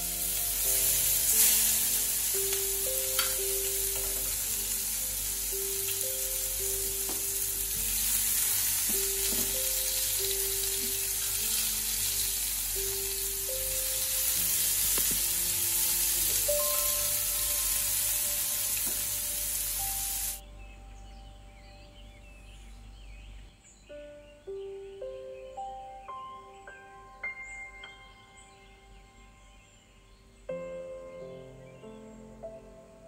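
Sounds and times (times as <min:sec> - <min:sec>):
vegetables sizzling in oil: 0:00.0 - 0:20.4
tongs clicking: 0:03.2 - 0:03.4.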